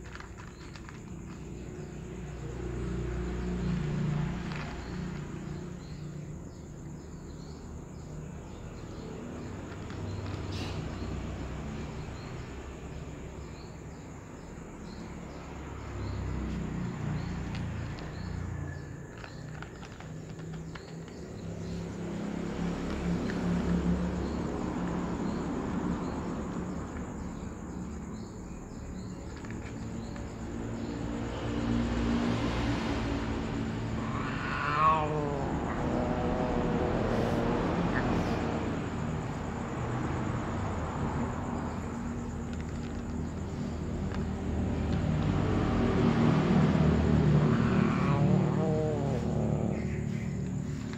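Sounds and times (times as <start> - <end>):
warbling animal call: 33.9 - 38.4, 47.4 - 50.2.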